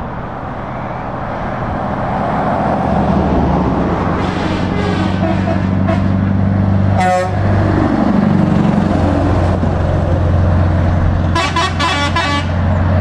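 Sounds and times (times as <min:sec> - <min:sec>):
truck engine driving past: 0:00.0 - 0:13.0
short horn toots: 0:04.4 - 0:06.1, 0:11.4 - 0:12.6.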